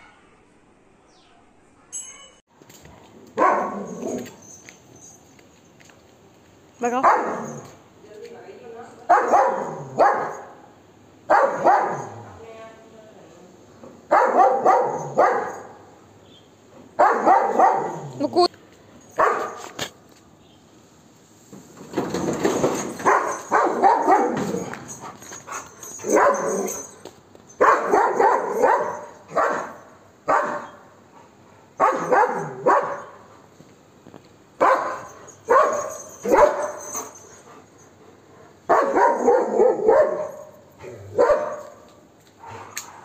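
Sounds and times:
dog barking aggressively: 3.4 - 4.4, 7.0 - 7.7, 9.1 - 10.6, 11.3 - 12.2, 14.1 - 15.8, 17.0 - 18.2, 19.2 - 19.6, 23.0 - 26.9, 27.6 - 30.8, 31.8 - 33.3, 34.6 - 37.0, 38.7 - 41.9.

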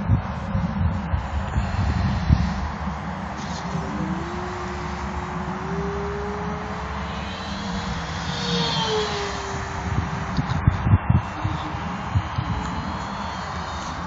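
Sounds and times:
model glider motor whine: 1.1 - 14.0.

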